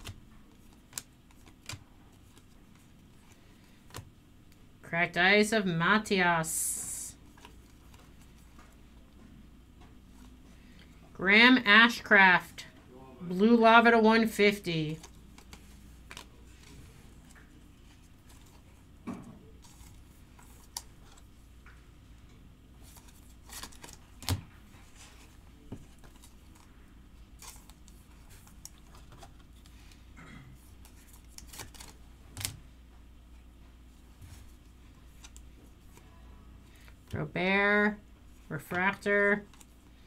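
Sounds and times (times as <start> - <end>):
cards clicking and tapping: 0.0 - 4.6, 14.9 - 17.5
low steady hum: 0.0 - 40.0.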